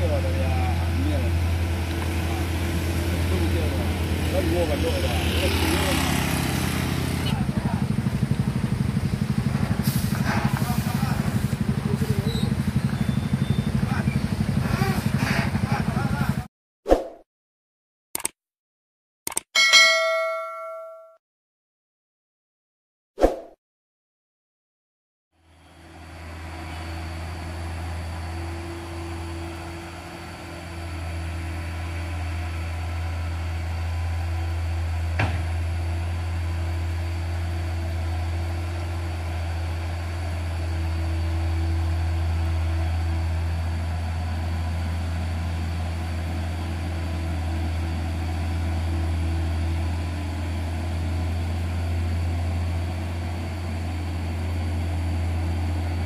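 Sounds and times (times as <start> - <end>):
truck engine labouring: 0.0 - 16.5, 25.4 - 56.0
sharp click: 18.2 - 18.4, 19.3 - 19.5.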